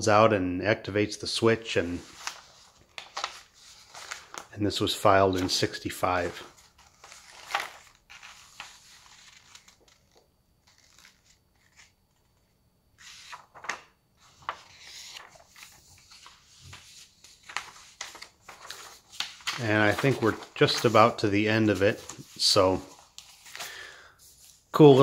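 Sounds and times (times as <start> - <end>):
paper rustling: 1.9 - 25.0.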